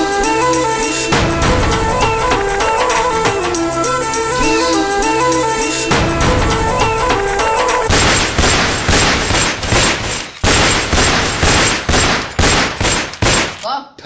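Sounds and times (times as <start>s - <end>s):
handgun shots: 7.7s - 13.7s.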